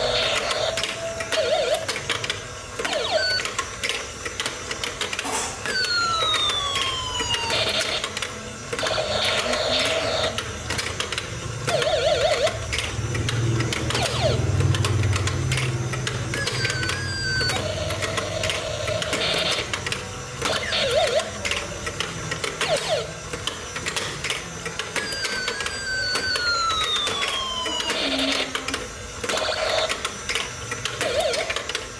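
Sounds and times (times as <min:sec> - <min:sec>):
toy electronic chirps: 0:00.0 - 0:02.2, 0:02.8 - 0:03.7, 0:05.6 - 0:10.5, 0:11.6 - 0:12.9, 0:16.1 - 0:19.7, 0:20.4 - 0:21.5, 0:24.8 - 0:28.6
low mechanical hum: 0:00.0 - 0:31.9.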